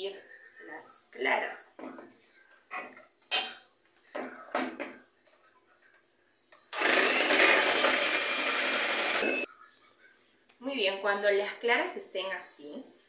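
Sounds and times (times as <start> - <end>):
electric hand mixer running: 6.7 - 9.5.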